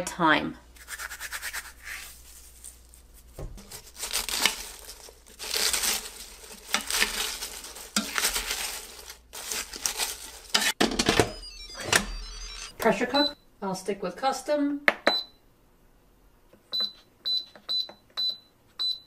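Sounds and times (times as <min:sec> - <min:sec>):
tongs tossing vegetables in a pot: 0:03.1 - 0:10.7.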